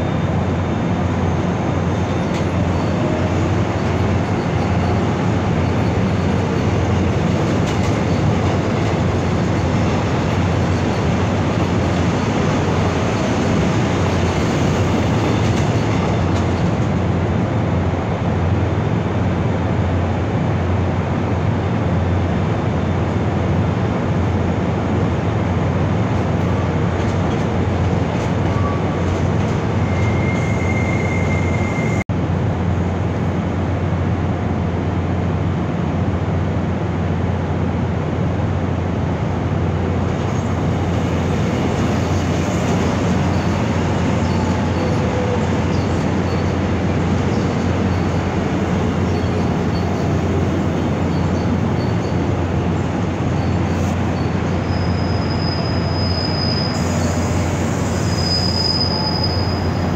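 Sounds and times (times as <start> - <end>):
rumble of rail traffic: 0.0 - 59.9
high wheel squeals: 1.9 - 7.0, 28.5 - 32.0, 42.0 - 59.9.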